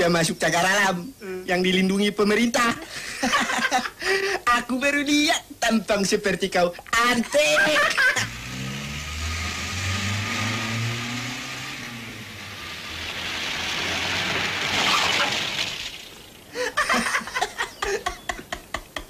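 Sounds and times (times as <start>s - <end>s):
car engine running: 7.7s - 16.5s
tyre hiss: 8.1s - 17.2s.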